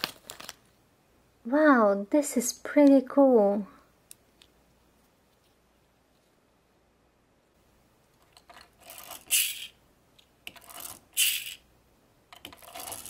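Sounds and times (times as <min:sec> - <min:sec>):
packaging rustling: 0:00.0 - 0:00.7
sharp plastic crackle: 0:00.0 - 0:00.7
plastic toys clattering: 0:08.2 - 0:09.8, 0:10.5 - 0:11.6, 0:12.3 - 0:13.0.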